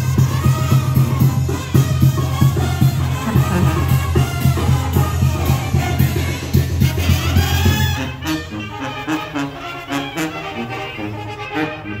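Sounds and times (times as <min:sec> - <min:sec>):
music with drums and heavy bass: 0:00.0 - 0:08.8.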